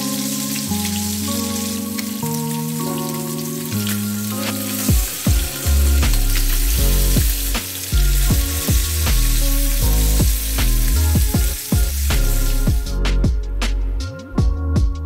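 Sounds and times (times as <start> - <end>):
fish sizzling in a frying pan: 0.0 - 13.0
background music with heavy bass: 0.0 - 15.0.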